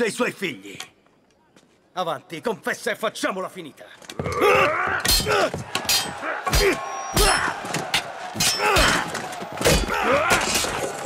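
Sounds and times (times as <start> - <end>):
shouts and grunts of effort: 4.2 - 11.0.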